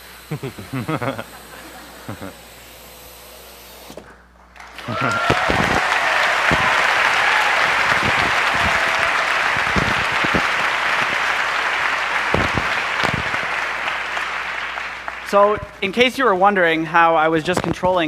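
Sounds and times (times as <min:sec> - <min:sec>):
audience applauding and cheering: 0:04.5 - 0:16.1
person whooping: 0:04.8 - 0:11.3.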